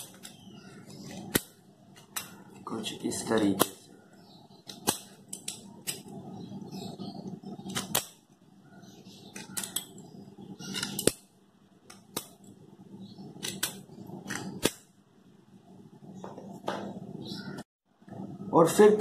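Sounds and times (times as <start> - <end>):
scissors snipping metal can: 9.3 - 9.9, 13.4 - 14.8.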